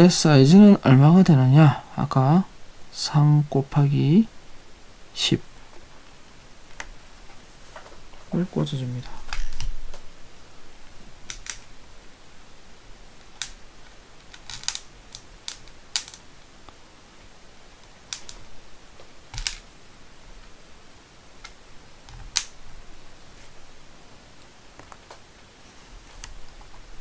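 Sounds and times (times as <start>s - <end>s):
small plastic parts clicking: 9.2s - 9.7s, 11.2s - 11.7s, 13.2s - 16.3s, 17.8s - 18.5s, 19.3s - 19.7s, 21.4s - 22.6s.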